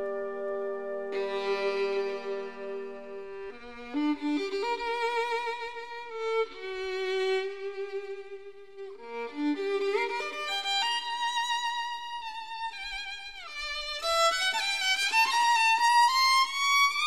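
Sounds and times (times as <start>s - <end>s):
violin playing held notes: 0.0s - 17.0s.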